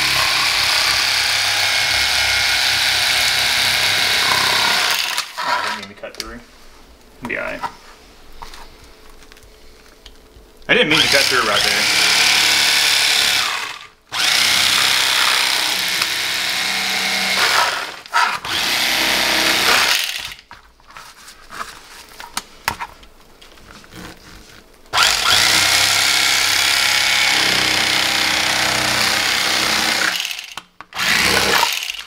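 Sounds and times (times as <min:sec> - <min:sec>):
electric fillet knife running: 0:00.0 - 0:05.4.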